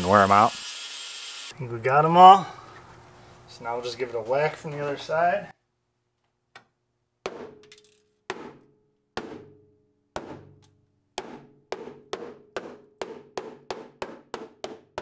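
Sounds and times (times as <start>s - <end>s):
hammer on sheet metal: 11.2s - 15.0s.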